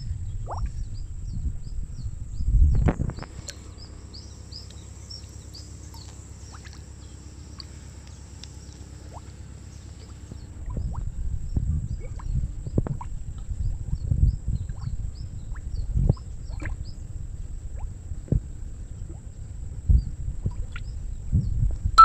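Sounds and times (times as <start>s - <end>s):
low rumble: 0.0s - 5.7s, 10.3s - 22.0s.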